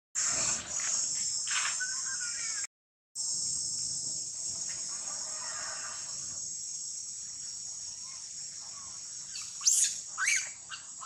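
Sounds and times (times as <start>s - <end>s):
insects chirping: 0.2s - 11.0s
high-pitched animal calls: 8.0s - 11.0s.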